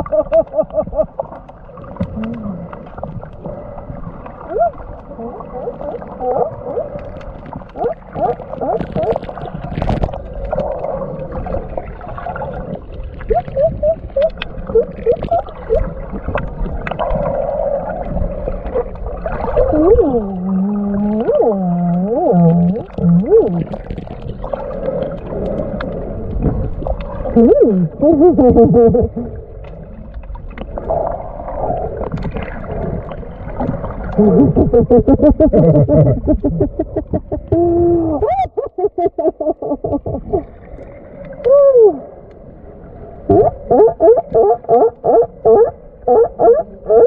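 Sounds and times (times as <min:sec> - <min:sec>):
sea lions moaning underwater: 0:02.0 - 0:09.4, 0:10.4 - 0:16.3, 0:16.9 - 0:30.1, 0:43.2 - 0:47.0.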